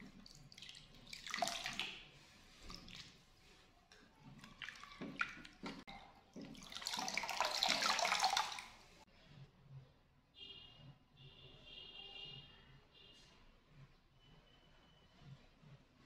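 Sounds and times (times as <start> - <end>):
water splashing and dripping: 0.0 - 9.0
water streaming from wrung hair: 0.0 - 9.1.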